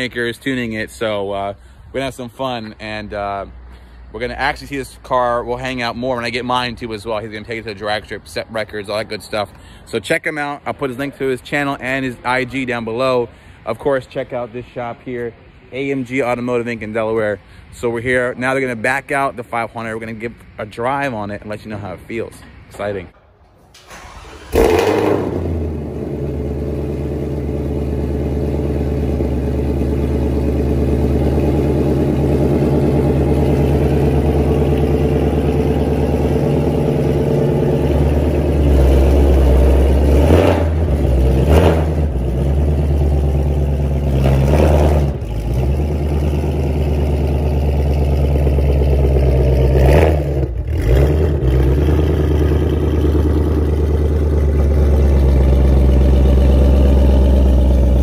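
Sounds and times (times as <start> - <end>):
car engine idling with deep burble: 25.8 - 40.2, 45.2 - 58.0.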